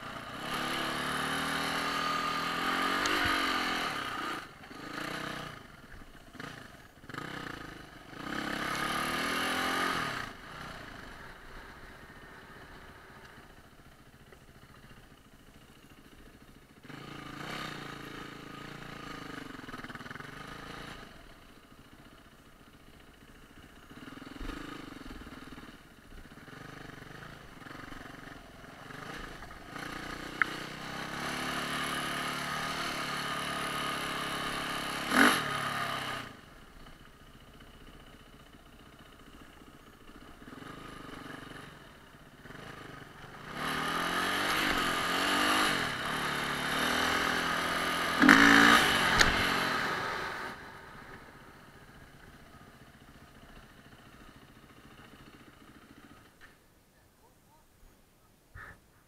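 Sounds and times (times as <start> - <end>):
dirt bike engine revving: 0.0 - 13.5, 16.8 - 21.4, 23.8 - 36.5, 40.3 - 56.5.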